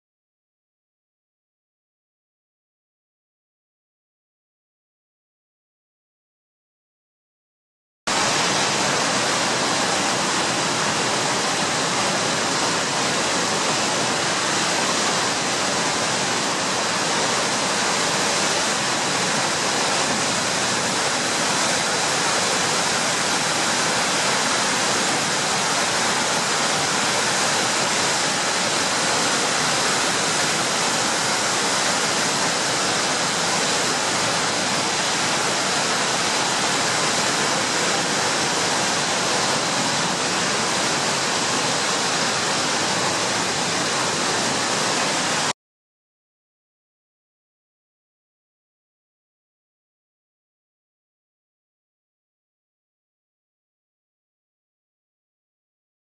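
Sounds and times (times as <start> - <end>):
water rushing through dam gates: 8.1 - 45.5.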